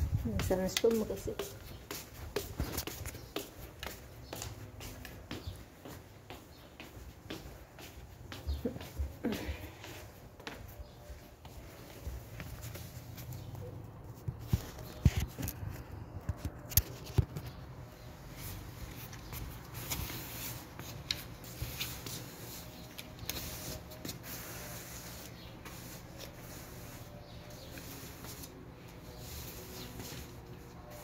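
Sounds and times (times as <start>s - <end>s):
broom sweeping tiled floor: 0.0s - 31.0s
slippered footsteps: 0.2s - 13.6s.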